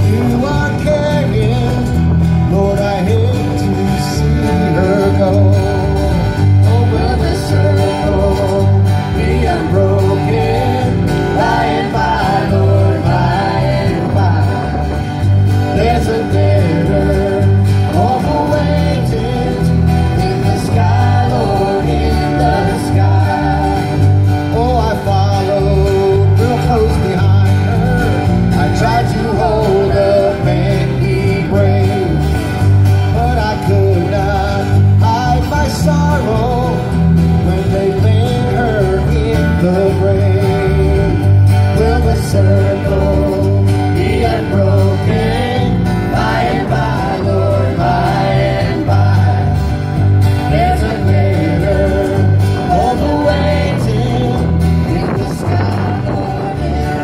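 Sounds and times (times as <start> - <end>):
live country band playing: 0.0 - 57.0
steady bass line: 0.0 - 57.0
person singing: 33.1 - 57.0.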